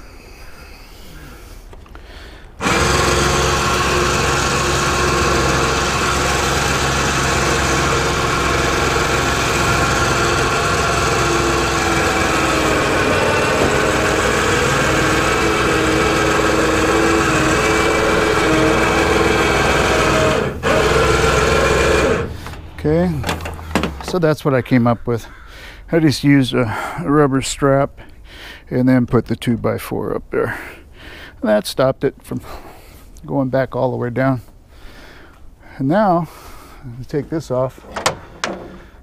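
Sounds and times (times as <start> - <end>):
electric winch motor running: 2.6 - 24.2.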